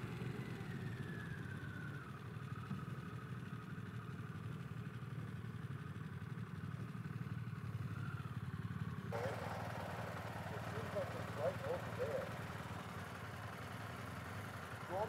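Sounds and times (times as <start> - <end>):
motorcycle engine rumbling: 9.0 - 15.0.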